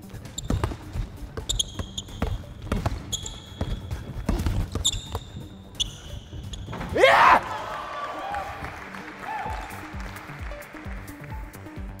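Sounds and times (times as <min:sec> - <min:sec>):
sneaker squeaks: 0:00.0 - 0:07.1
basketball dribbling on hardwood: 0:00.3 - 0:06.8.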